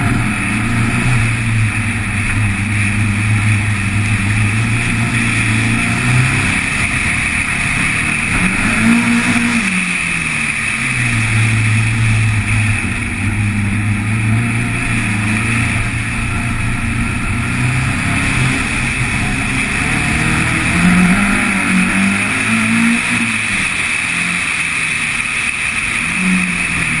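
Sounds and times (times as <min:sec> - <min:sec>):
car engine running hard: 0:00.0 - 0:27.0
wind and road noise: 0:00.0 - 0:27.0.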